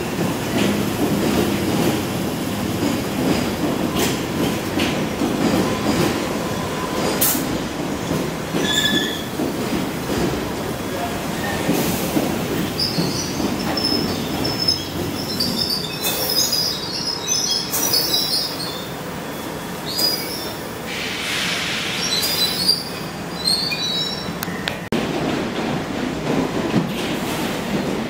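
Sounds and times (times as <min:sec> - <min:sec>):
train rumbling: 0:00.0 - 0:28.0
train wheels squealing: 0:08.5 - 0:09.4, 0:12.6 - 0:24.6
short bursts of hiss: 0:20.9 - 0:22.7.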